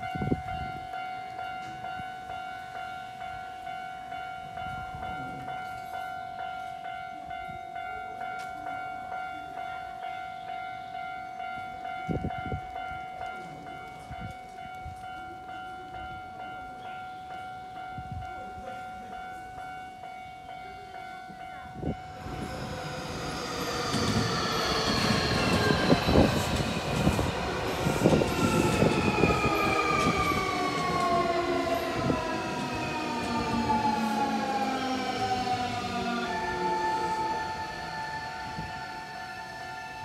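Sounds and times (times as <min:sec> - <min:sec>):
level-crossing alarm tone: 0:19.4 - 0:40.0
train motors whining: 0:22.1 - 0:40.0.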